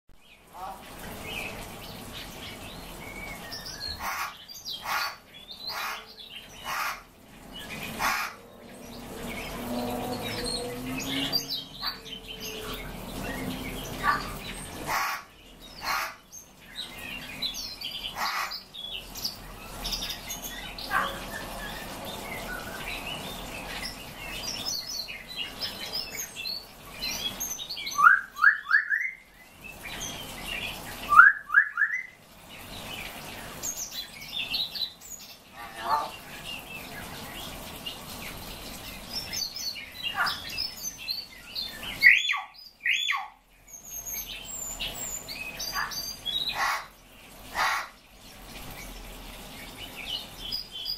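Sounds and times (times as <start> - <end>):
finches chirping: 3.6 - 7.1.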